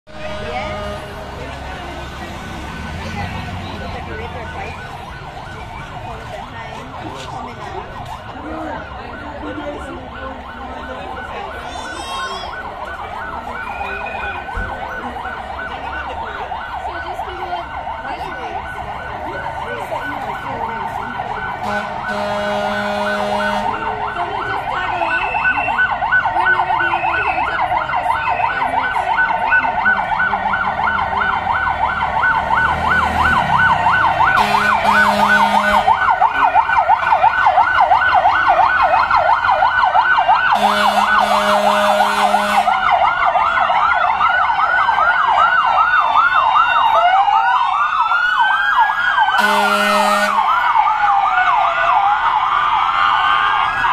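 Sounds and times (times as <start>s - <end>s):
emergency sirens yelping: 0.0s - 53.9s
deep horn blasts: 0.1s - 1.4s, 21.6s - 23.8s, 34.4s - 36.0s, 40.6s - 42.7s, 49.4s - 50.5s
siren wail rising and falling: 0.1s - 53.9s.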